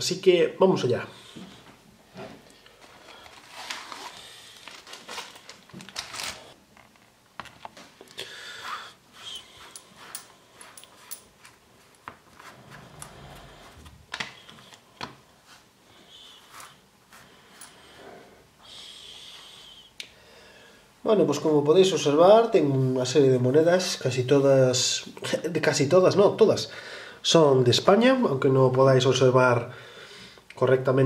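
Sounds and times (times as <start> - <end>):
paper envelope tearing: 3.4 - 6.6.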